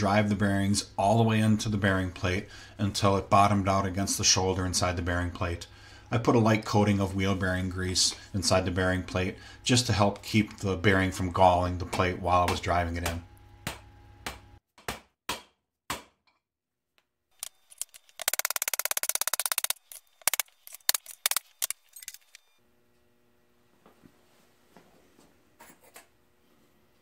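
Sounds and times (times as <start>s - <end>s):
fast rattle of clicks: 17.4s - 22.4s.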